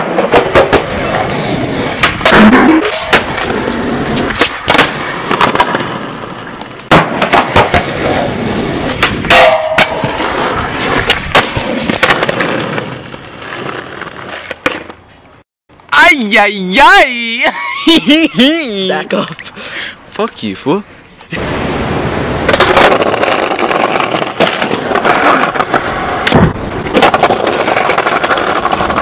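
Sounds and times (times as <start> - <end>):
skateboard clacking on ground: 0.0 - 8.3, 8.9 - 15.2, 22.5 - 29.0
skateboard wheels rolling on concrete: 0.0 - 29.0.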